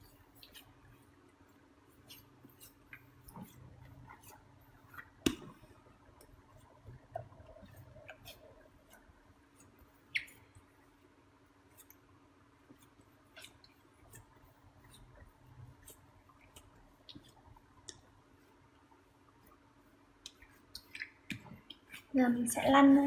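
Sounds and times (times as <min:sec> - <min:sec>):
sticky clicks of dough pressed: 0:04.8 - 0:09.0, 0:11.7 - 0:18.2, 0:20.2 - 0:22.1.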